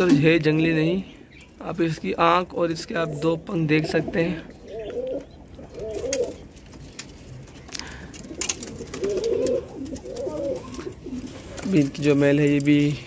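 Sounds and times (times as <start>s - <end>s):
pigeons cooing: 2.6s - 12.6s.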